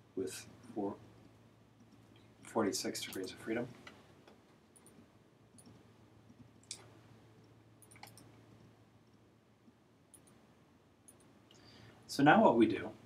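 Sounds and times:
faint low steady hum: 0:00.0 - 0:13.0
computer mouse clicks: 0:03.0 - 0:09.3, 0:10.1 - 0:10.4, 0:11.1 - 0:11.3.

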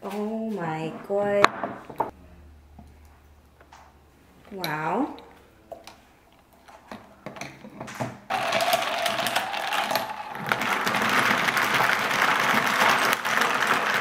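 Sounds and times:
ice cubes clinking against glass: 0:08.3 - 0:14.0.

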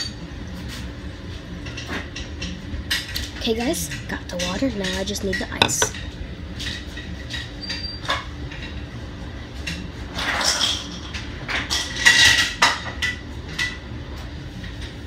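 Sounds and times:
kitchen clicks and knocks: 0:04.8 - 0:06.0.

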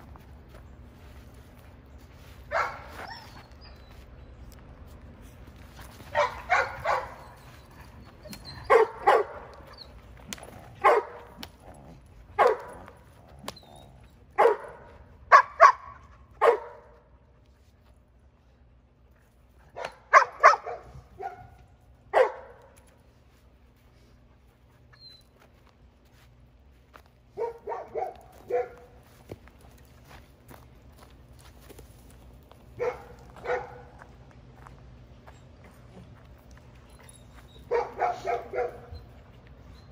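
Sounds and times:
puppy barking: 0:02.5 - 0:03.3, 0:06.1 - 0:07.4, 0:08.6 - 0:09.7, 0:10.8 - 0:11.3, 0:12.4 - 0:12.9, 0:14.4 - 0:16.9, 0:19.8 - 0:22.6, 0:27.3 - 0:29.0, 0:32.8 - 0:34.0, 0:37.6 - 0:39.0.

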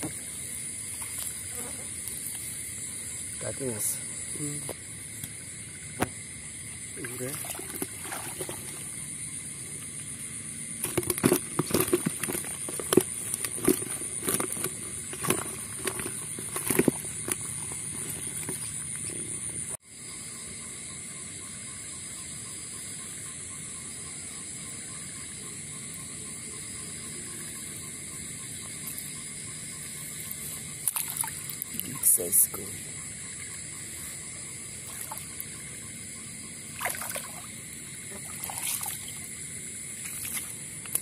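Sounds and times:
night insects droning: 0:00.0 - 0:41.0
fish thrashing in plastic bucket: 0:07.2 - 0:09.0, 0:10.8 - 0:19.1.

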